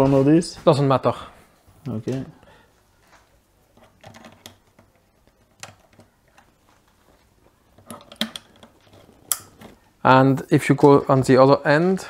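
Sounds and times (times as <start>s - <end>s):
hands handling wiring clicks: 3.8s - 6.6s, 7.7s - 9.8s.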